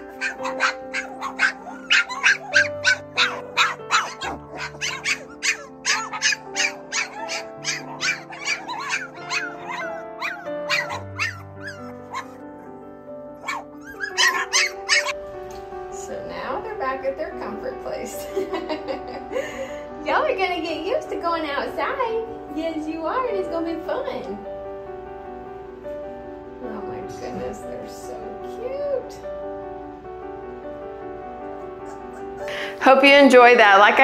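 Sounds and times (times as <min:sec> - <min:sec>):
puppies yipping and barking: 0:00.0 - 0:15.2, 0:31.5 - 0:32.5
background music with held notes: 0:00.0 - 0:34.0.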